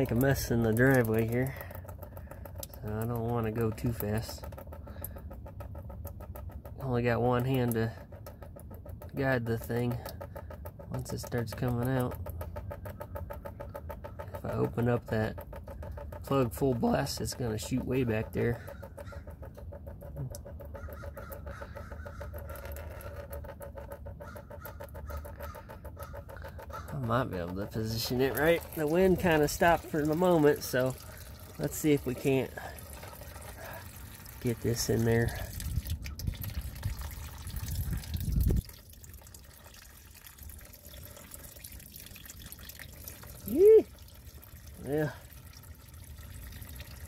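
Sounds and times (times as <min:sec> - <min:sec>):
oil pouring in a stream: 0:00.0 - 0:47.0
low rumble on microphone: 0:17.4 - 0:39.6
wind rumbling on microphone: 0:35.4 - 0:38.9.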